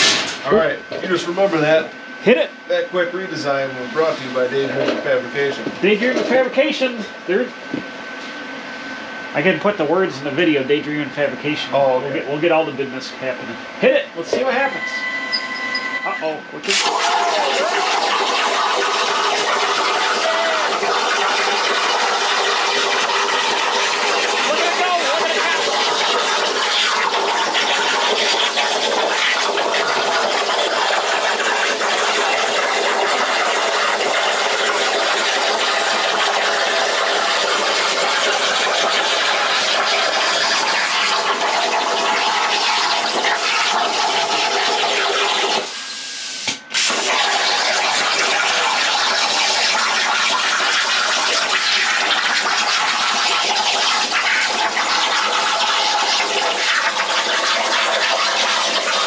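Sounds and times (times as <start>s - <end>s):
plasma torch cutting hiss: 16.6s - 59.0s.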